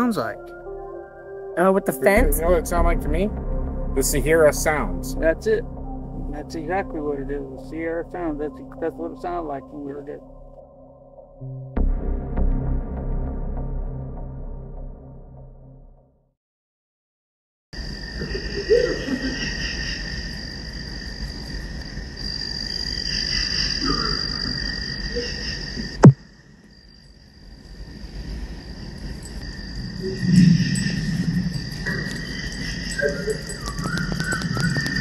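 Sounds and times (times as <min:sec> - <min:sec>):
low rumble: 0:02.2 - 0:09.1, 0:29.2 - 0:34.0
frogs and insects chorus: 0:04.4 - 0:10.2, 0:17.8 - 0:35.0.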